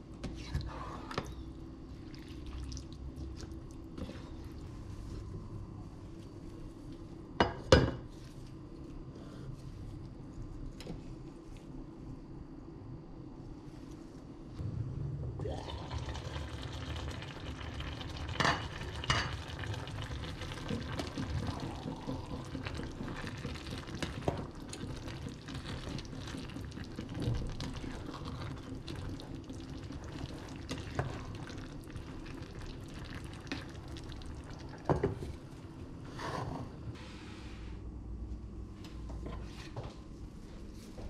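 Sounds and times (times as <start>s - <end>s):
pot simmering: 1.4s - 5.2s, 15.2s - 35.6s.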